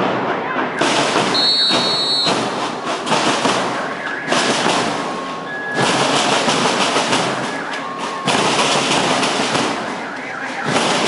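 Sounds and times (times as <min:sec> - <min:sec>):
bass and snare drums drumming: 0:00.8 - 0:11.0.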